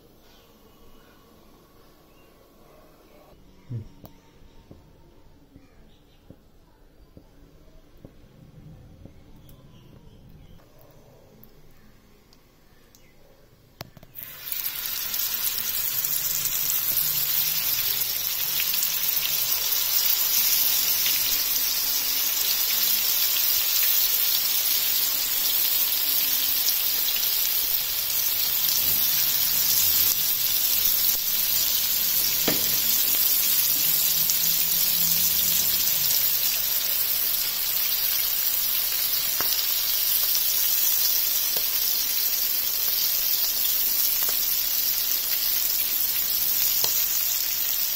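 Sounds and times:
fish sizzling in hot oil: 14.1s - 47.9s.

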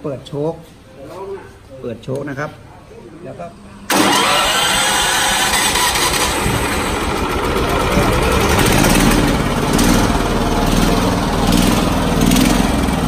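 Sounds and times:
tiller engine running: 3.9s - 13.0s.

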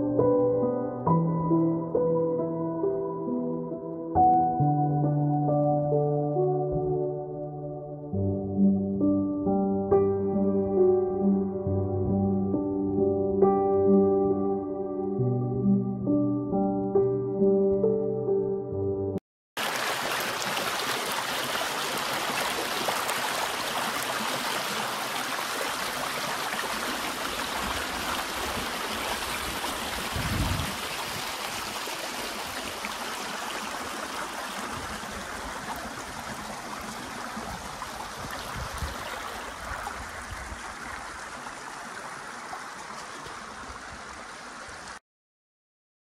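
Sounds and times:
stream rushing over rocks: 19.6s - 45.0s.

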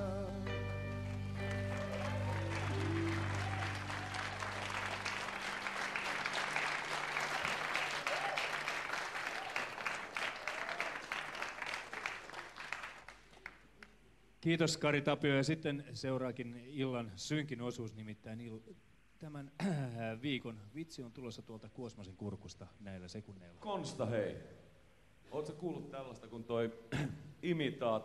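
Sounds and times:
audience applauding: 0.8s - 14.0s.

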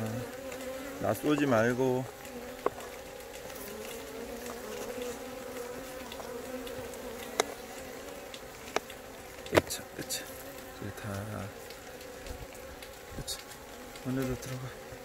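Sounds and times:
honeybees buzzing: 0.0s - 15.0s.

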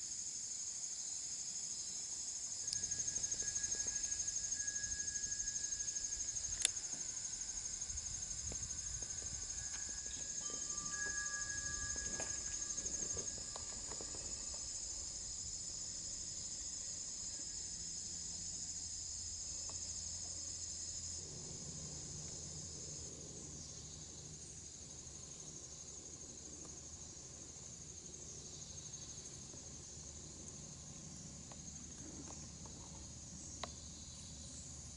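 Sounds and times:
insects trilling: 0.0s - 34.9s
faint clicks and rustles: 7.9s - 14.9s.

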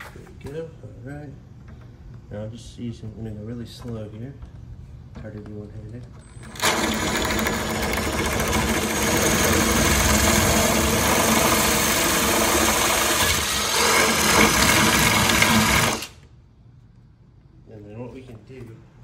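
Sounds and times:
power drill boring through plastic: 6.5s - 16.2s.

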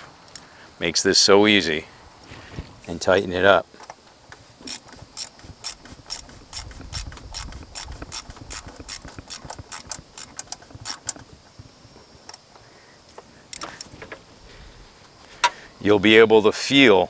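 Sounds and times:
ratchet clicking: 4.6s - 11.3s.

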